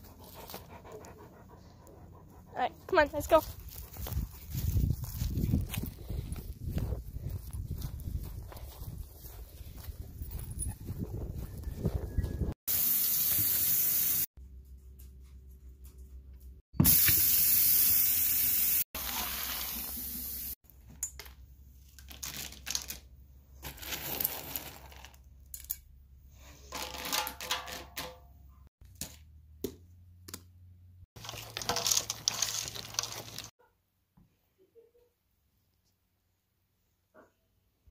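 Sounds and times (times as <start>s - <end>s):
kibble rattling into metal bowl: 31.2s - 33.5s.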